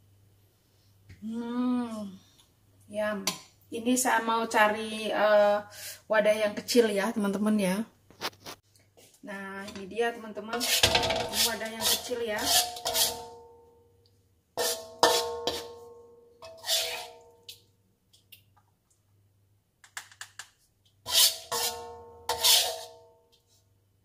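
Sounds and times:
wok ringing: 14.6s - 17.4s, 21.2s - 23.2s.

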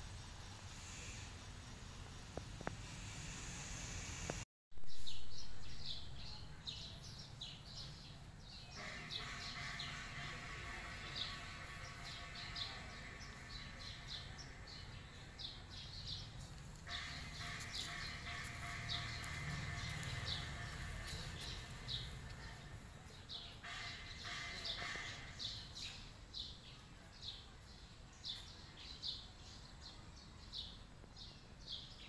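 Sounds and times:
small birds chirping: 11.1s - 32.0s.

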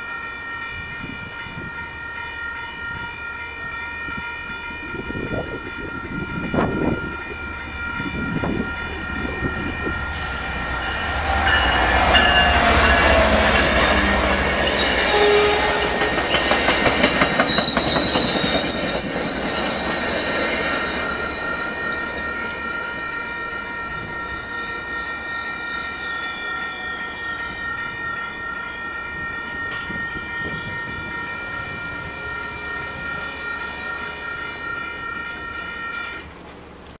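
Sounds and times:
railroad crossing bells ringing: 0.0s - 36.9s
train rumble and wheel clatter: 0.0s - 37.0s
high wheel squeal: 9.2s - 36.3s.

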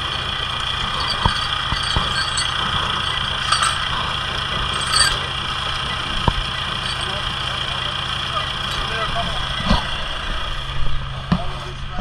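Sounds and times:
steel chain clinking: 0.0s - 7.3s.

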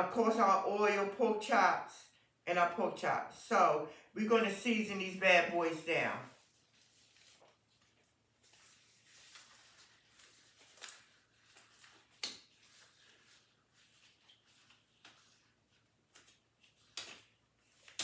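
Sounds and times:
disposable gloves rustling: 5.7s - 18.0s
glove crinkles: 6.4s - 18.0s.

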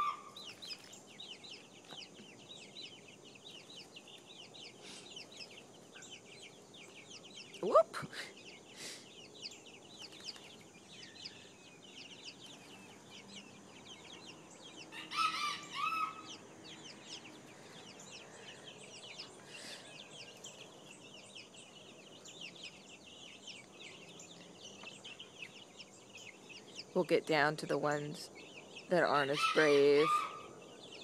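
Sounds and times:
chicken call: 0.0s - 0.4s, 29.3s - 30.5s
chicks peeping: 0.0s - 31.0s.

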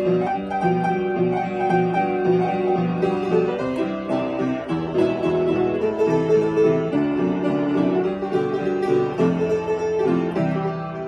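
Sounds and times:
piano playing: 0.0s - 11.0s.

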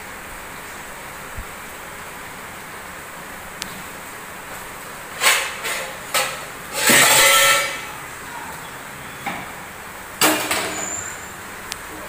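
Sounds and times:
steel pots and pans clattering: 5.1s - 8.0s, 10.2s - 11.3s.

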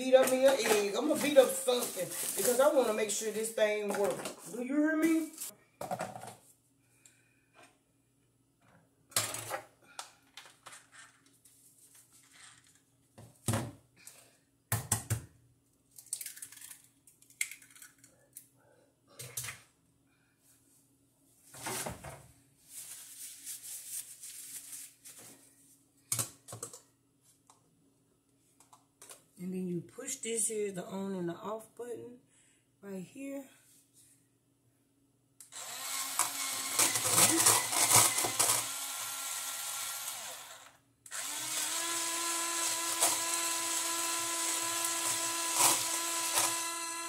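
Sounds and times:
faint steady hum: 24.1s - 36.8s.

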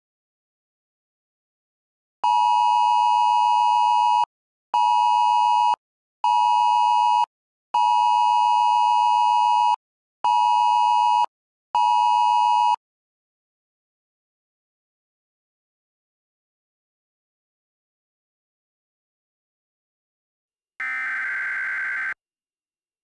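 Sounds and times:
harsh two-pitch phone alert tone: 20.8s - 22.2s.

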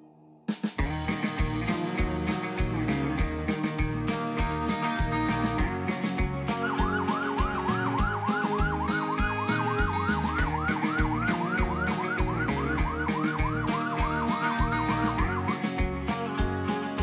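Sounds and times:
rock music with drum beat: 0.5s - 17.0s
electronic siren yelping: 6.5s - 15.5s.

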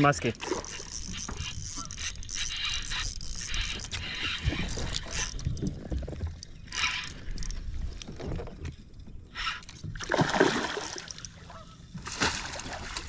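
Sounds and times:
water against boat hull: 0.0s - 13.0s.

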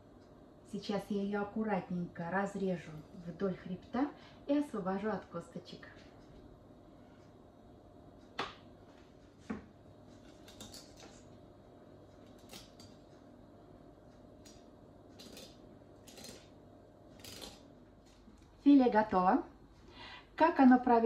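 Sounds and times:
knife scraping and cutting fish: 12.3s - 13.0s, 15.2s - 16.5s, 17.2s - 17.7s.

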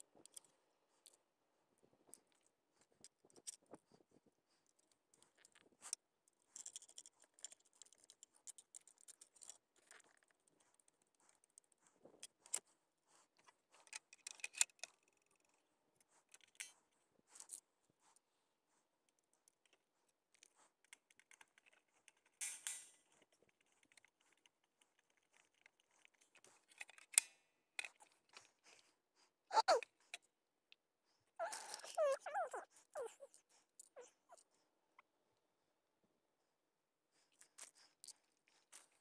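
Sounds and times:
clicks and rattles of handled parts: 1.9s - 12.7s, 13.4s - 17.6s, 19.2s - 28.8s.

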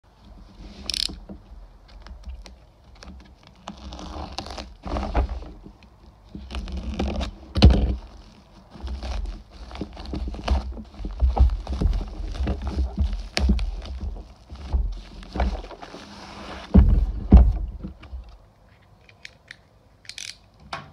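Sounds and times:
plastic tearing: 2.0s - 5.4s.

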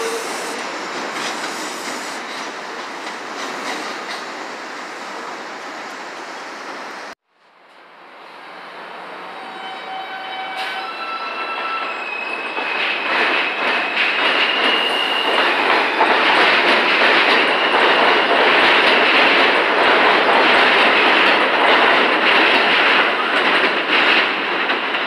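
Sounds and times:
train rumble and wheel clatter: 0.0s - 25.0s
high squealing tones: 9.3s - 15.6s.

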